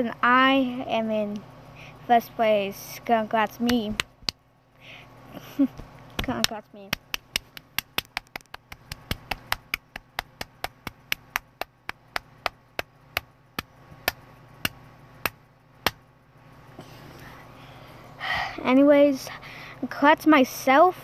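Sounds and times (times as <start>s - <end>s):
sharp taps: 3.6s - 4.4s, 5.8s - 16.0s.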